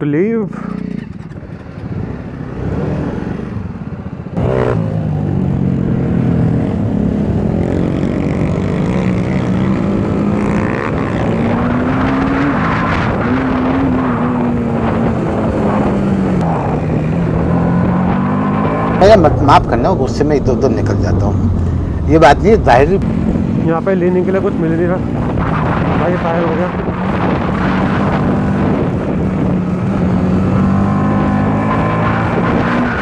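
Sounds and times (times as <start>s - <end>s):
motorcycle engine running: 0.5s - 11.7s
wind noise: 1.0s - 33.0s.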